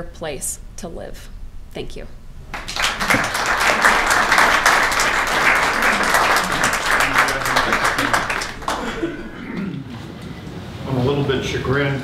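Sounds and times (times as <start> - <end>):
audience applauding: 2.5 - 9.4.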